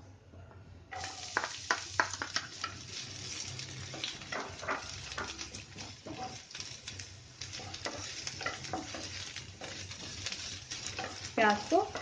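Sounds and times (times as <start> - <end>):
onion sizzling in hot oil: 0.9 - 12.0
wooden spatula clacking: 4.0 - 12.0.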